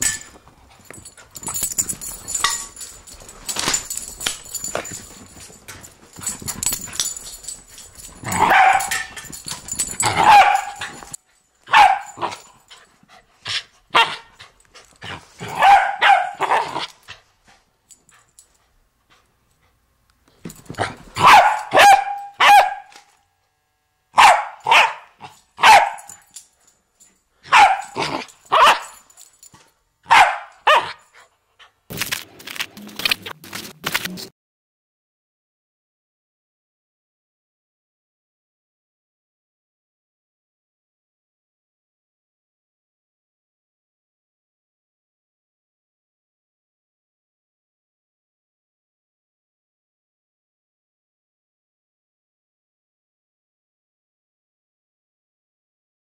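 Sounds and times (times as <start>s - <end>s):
dog barking: 8.3s - 9.1s, 10.1s - 12.4s, 13.9s - 14.3s, 15.4s - 16.8s, 21.2s - 22.9s, 24.2s - 26.2s, 27.5s - 29.0s, 30.1s - 31.0s.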